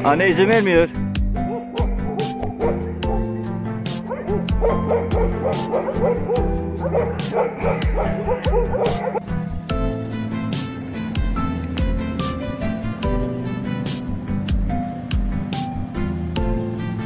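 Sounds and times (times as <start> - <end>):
background music with steady beat: 0.0 - 17.0
puppies yipping and whimpering: 1.5 - 3.3, 4.0 - 9.2.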